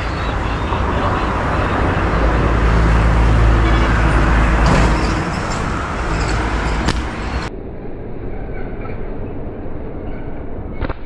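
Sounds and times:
motor vehicle engine rumble: 0.0s - 10.9s
sharp snap: 10.8s - 11.0s.

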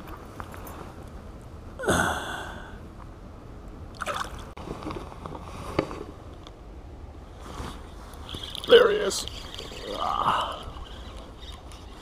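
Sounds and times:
water splashing and sloshing: 3.9s - 4.9s.

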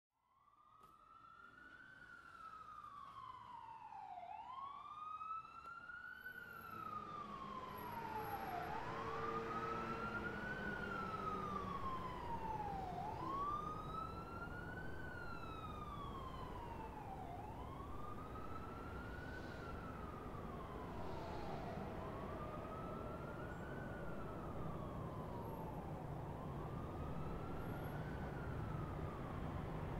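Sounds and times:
emergency siren wailing: 0.3s - 29.9s.

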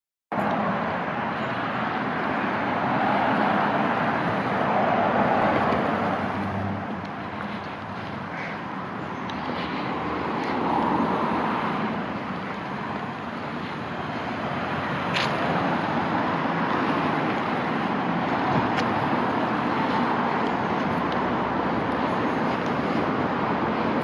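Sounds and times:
road traffic rushing: 0.3s - 24.0s.

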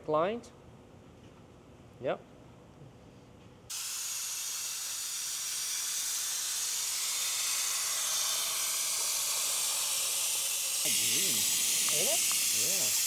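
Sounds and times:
suction tool air hiss: 3.7s - 13.0s.

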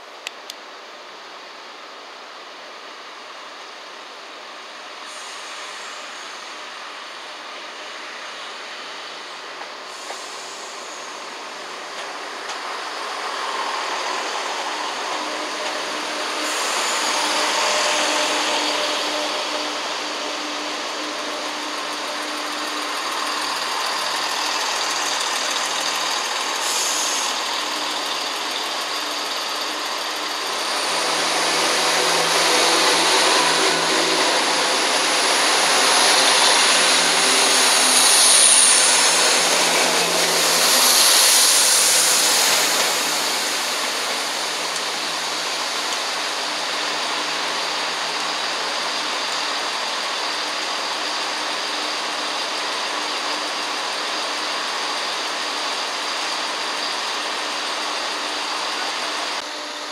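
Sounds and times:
diesel train engine hum: 0.0s - 59.9s
train passing close: 0.8s - 59.9s
high squeal: 13.8s - 45.6s.

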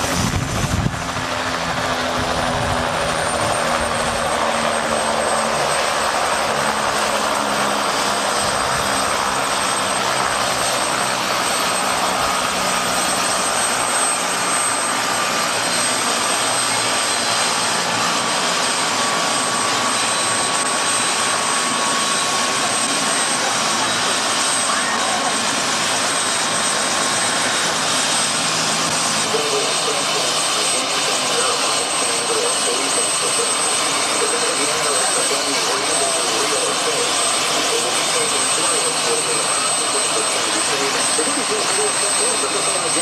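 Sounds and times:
helicopter turbine whine: 0.0s - 43.0s
rush of helicopter rotor: 0.0s - 43.0s.

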